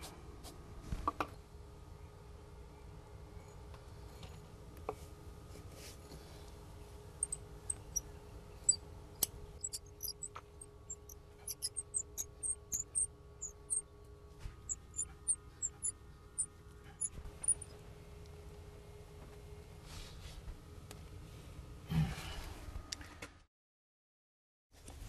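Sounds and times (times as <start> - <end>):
faint steady hum: 0.0 - 23.4
short high-pitched chirps: 7.2 - 8.0, 10.9 - 13.6, 15.0 - 15.9.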